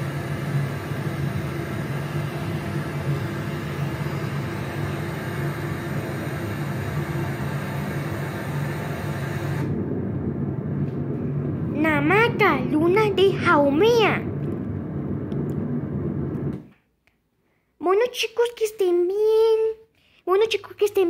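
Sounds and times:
hiss: 0.0 - 9.7
low rumbling hum: 0.0 - 16.8.

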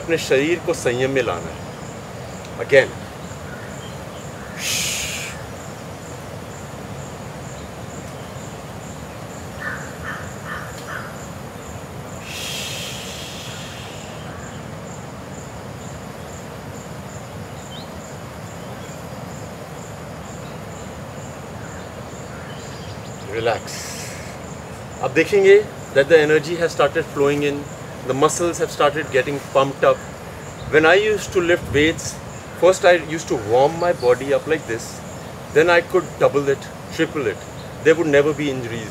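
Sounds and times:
background hiss: 0.0 - 38.9
bird calls: 0.0 - 38.9
insects chirping: 0.0 - 38.9
hissing bursts: 4.5 - 5.7, 12.2 - 14.4, 23.4 - 24.6.

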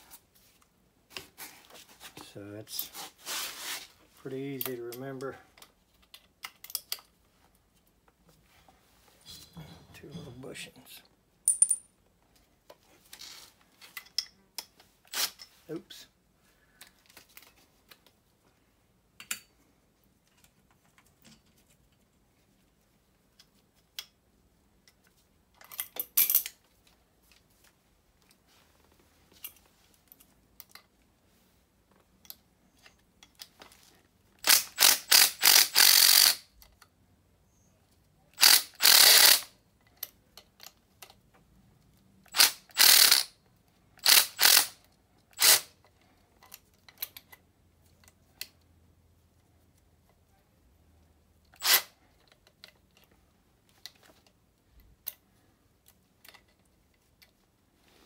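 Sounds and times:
ratchet wrench clicking: 34.4 - 36.4, 38.4 - 39.5, 42.3 - 43.3, 44.0 - 44.8, 45.4 - 45.7, 51.6 - 51.9.

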